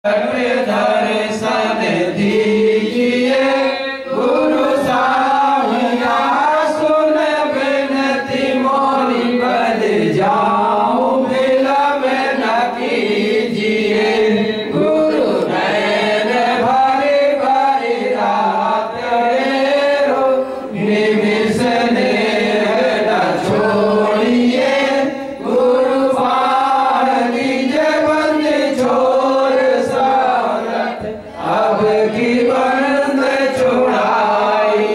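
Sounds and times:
voices chanting through a microphone: 0.0 - 34.9.

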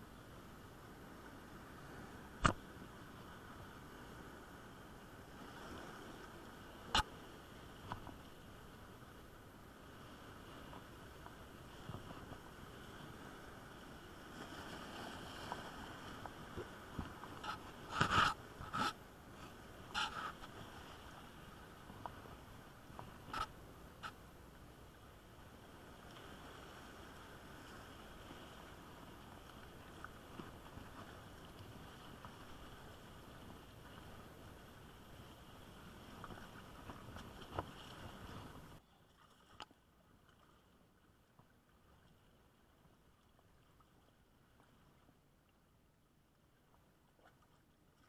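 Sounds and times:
sea surf: 0.0 - 38.8
wind: 0.0 - 48.0
faint ticks: 22.9 - 24.2.

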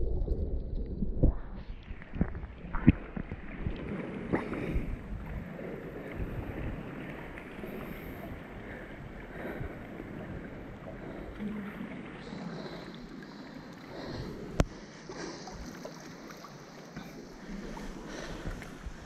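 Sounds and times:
sea water lapping: 1.9 - 19.0.

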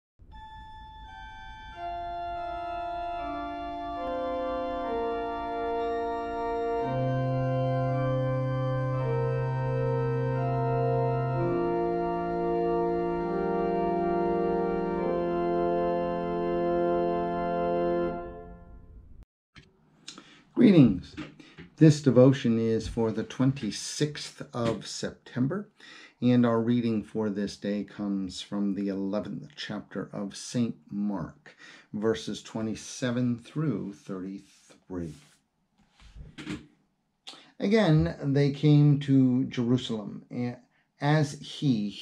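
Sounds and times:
organ playing slow chords: 0.2 - 19.1.

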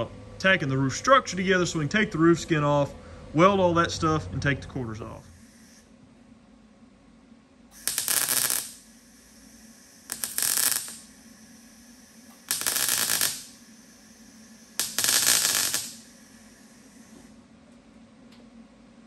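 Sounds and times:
short tack welds: 7.7 - 17.3.

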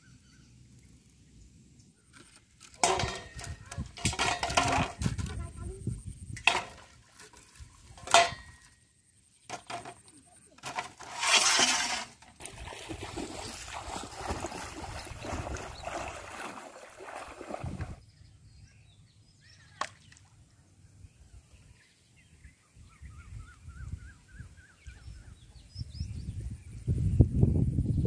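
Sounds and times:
water sloshing and splashing: 2.3 - 5.4, 6.4 - 8.7, 10.6 - 18.0.

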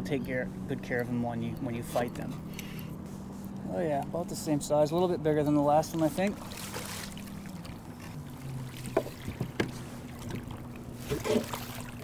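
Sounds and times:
electric trolling motor hum: 0.0 - 12.0
fish splashing in water: 6.3 - 12.0.

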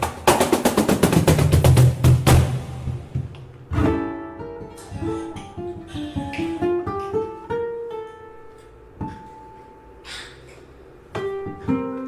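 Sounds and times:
ukulele picked melody: 3.6 - 9.8, 11.2 - 12.0.

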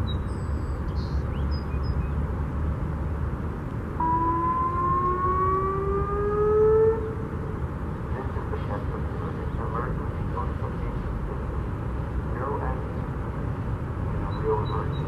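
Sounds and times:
electronic siren rising tone: 4.0 - 7.4.

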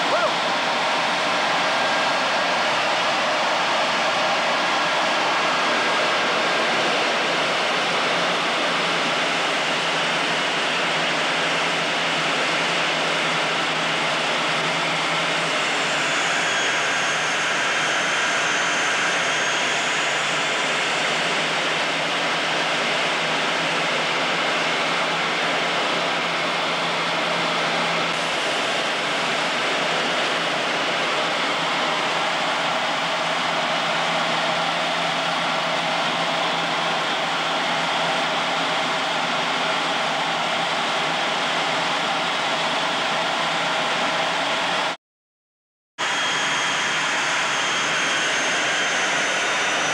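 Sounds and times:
jet cockpit rushing noise: 12.3 - 24.1, 25.7 - 37.2, 46.0 - 49.9
faint high whistle: 15.5 - 21.2.

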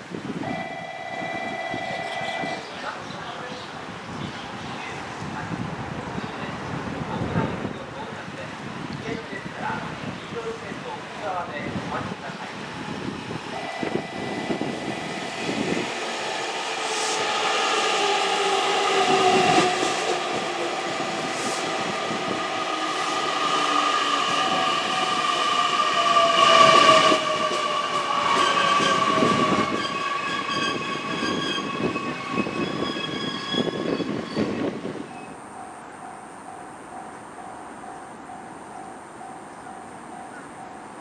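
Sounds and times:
rail noise: 0.0 - 41.0
high ringing tones: 0.4 - 2.7, 13.6 - 15.9
high steady squeal: 22.6 - 39.0.

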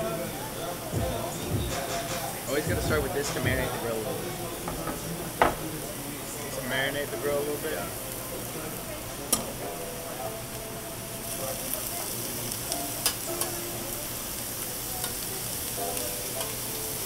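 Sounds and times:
meat sizzling on a grill: 0.0 - 17.0
tongs clicking on grill plate: 9.3 - 9.5, 12.7 - 13.6, 15.0 - 15.3, 16.3 - 16.6.

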